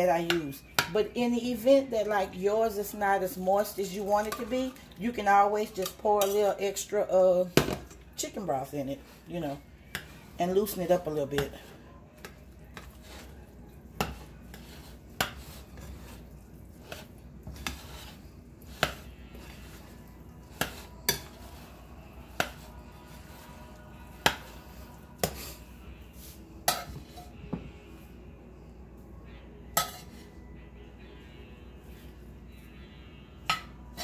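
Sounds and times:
metal spoon stirring in bowl: 0.0 - 25.8, 26.6 - 27.4, 29.8 - 30.3.

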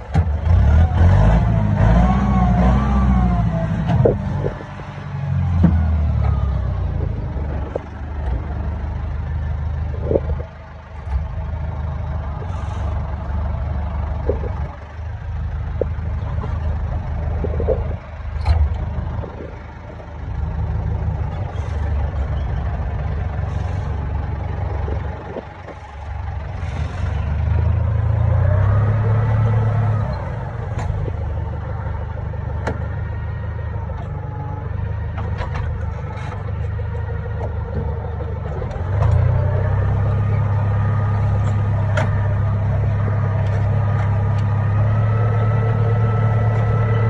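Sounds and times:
clanks and knocks from tractor loader: 0.0 - 0.8, 3.8 - 8.8, 9.8 - 11.5, 13.9 - 23.8, 24.4 - 47.0
tractor engine droning: 0.0 - 47.0.

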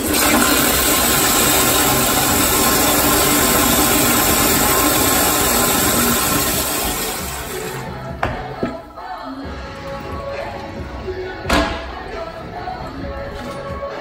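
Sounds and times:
toilet flushing: 0.0 - 7.9.

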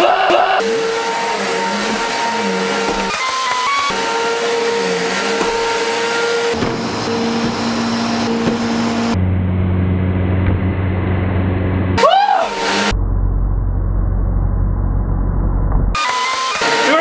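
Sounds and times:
vacuum cleaner running: 0.0 - 9.2, 16.0 - 17.0.

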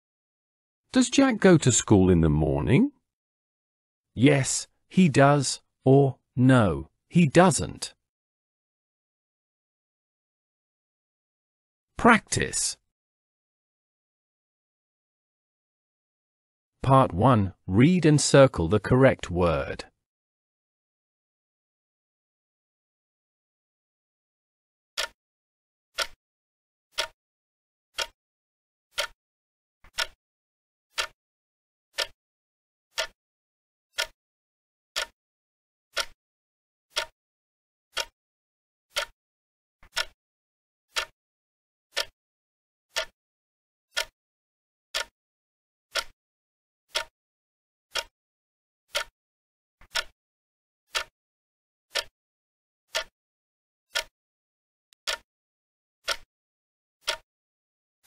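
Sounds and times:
clock ticking: 4.2 - 7.9, 26.0 - 26.2, 27.0 - 27.2, 28.0 - 28.2, 29.0 - 29.2, 29.9 - 30.2, 31.0 - 31.2, 32.0 - 32.2, 33.0 - 33.2, 34.0 - 34.2, 35.0 - 35.2, 36.0 - 36.2, 36.9 - 37.2, 38.0 - 38.2, 38.9 - 39.2, 39.8 - 40.2, 40.9 - 41.1, 42.0 - 42.2, 42.9 - 43.2, 43.9 - 44.2, 45.9 - 46.2, 46.9 - 47.1, 47.9 - 48.1, 48.9 - 49.1, 49.9 - 50.1, 50.9 - 51.1, 51.9 - 52.1, 52.9 - 53.1, 53.9 - 54.1, 55.0 - 55.2, 56.0 - 56.3, 57.0 - 57.2.

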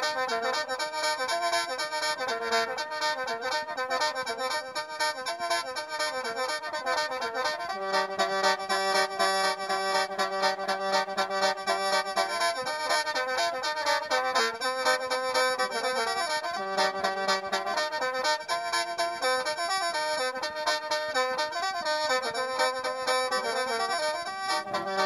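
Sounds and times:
mouth organ playing chords: 6.9 - 19.6, 20.2 - 25.0.

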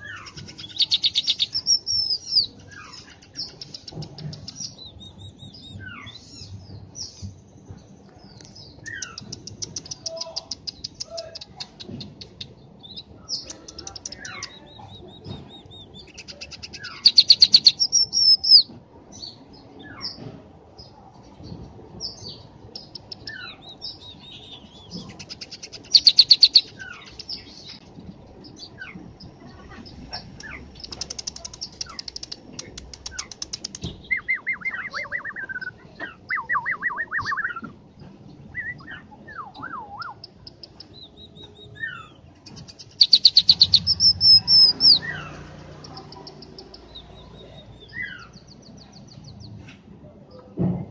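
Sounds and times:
bird clicking notes: 8.9 - 12.5, 30.4 - 33.9.

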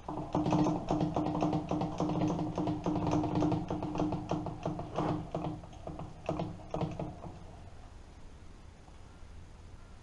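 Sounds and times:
lathe handwheel clicks and knocks: 0.0 - 7.5
steady machine hum: 0.0 - 10.0.

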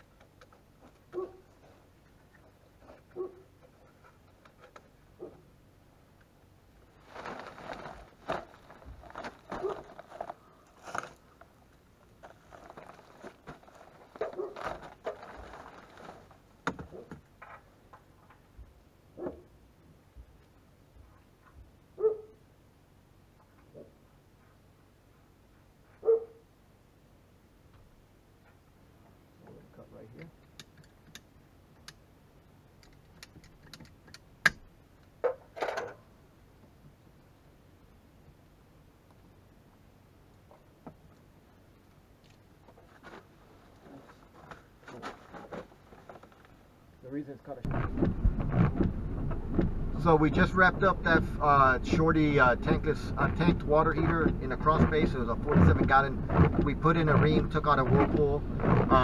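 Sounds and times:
plastic sheeting rustling: 6.9 - 11.2, 12.2 - 16.4
scraping rustle: 6.9 - 11.5, 12.1 - 17.1, 42.6 - 46.6, 47.6 - 59.0.

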